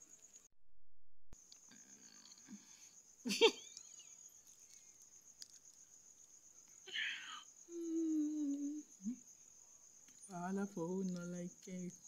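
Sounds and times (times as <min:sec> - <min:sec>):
crickets chirping: 0:00.0 - 0:00.5, 0:01.4 - 0:12.0
person humming while eating: 0:07.7 - 0:09.2.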